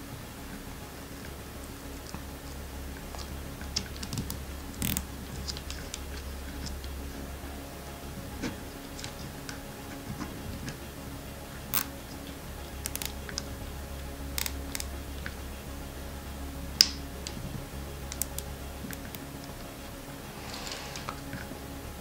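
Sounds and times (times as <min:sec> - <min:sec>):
low steady hum: 0:00.0 - 0:22.0
zip tie clicking: 0:03.2 - 0:07.0, 0:11.7 - 0:12.2, 0:12.8 - 0:13.5, 0:14.1 - 0:15.4, 0:18.0 - 0:19.3.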